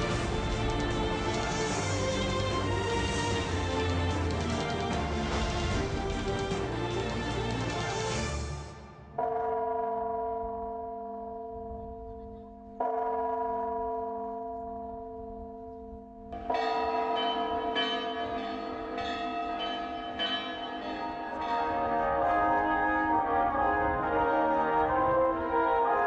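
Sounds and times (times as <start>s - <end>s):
large church bell ringing: 9.1s - 26.0s.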